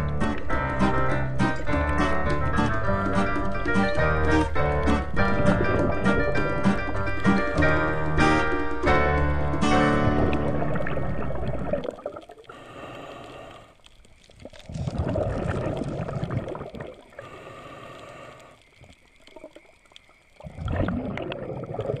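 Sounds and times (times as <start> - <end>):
bubbling exhale: 10.3 - 19.5, 20.4 - 22.0
regulator hissing inhale: 12.5 - 13.9, 17.1 - 18.7.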